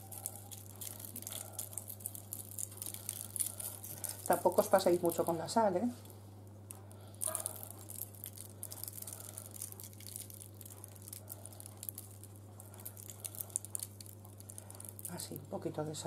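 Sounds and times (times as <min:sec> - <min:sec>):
salt grains pattering: 0:00.0 - 0:05.6, 0:07.2 - 0:15.4
steady low hum: 0:00.0 - 0:16.0.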